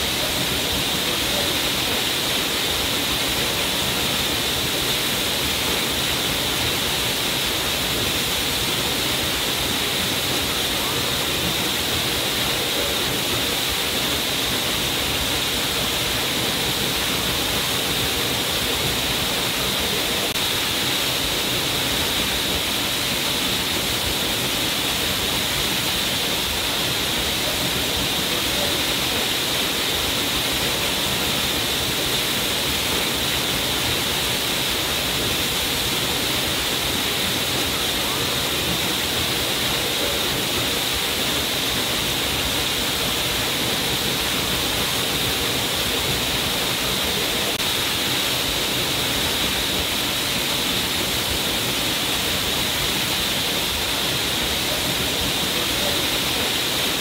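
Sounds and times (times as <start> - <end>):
waterfall rushing: 0.0 - 57.0.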